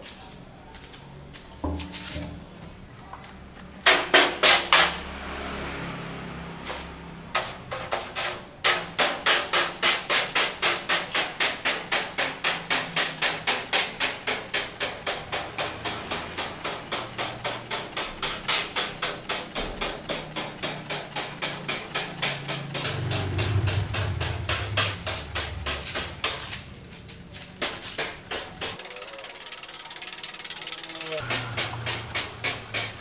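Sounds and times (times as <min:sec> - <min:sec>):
spray bottle squirting water: 0:27.7 - 0:32.9.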